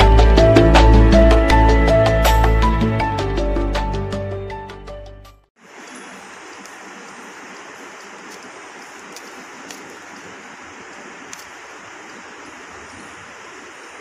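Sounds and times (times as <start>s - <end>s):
faint ticks: 7.6s - 12.2s.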